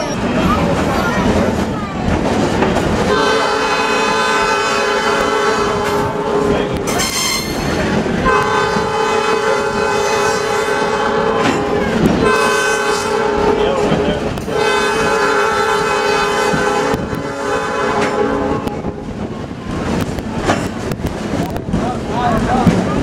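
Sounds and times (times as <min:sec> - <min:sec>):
train rumbling: 0:00.0 - 0:23.0
train horn blasts: 0:03.1 - 0:19.1.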